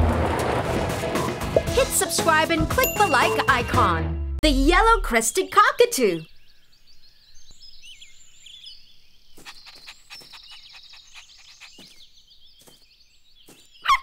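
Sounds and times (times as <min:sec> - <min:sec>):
small birds chirping: 0:04.8 - 0:14.0.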